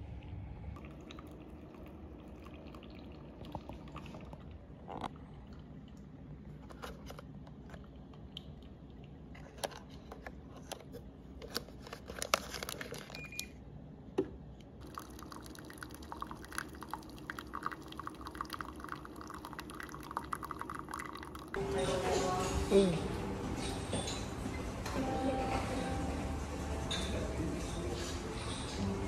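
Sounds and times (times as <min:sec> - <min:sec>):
coffee machine pump hum: 0:00.0 - 0:07.3, 0:14.8 - 0:22.6
coffee trickling into cup: 0:00.8 - 0:08.3, 0:14.8 - 0:21.6
plastic wrappers crinkling: 0:11.4 - 0:13.2.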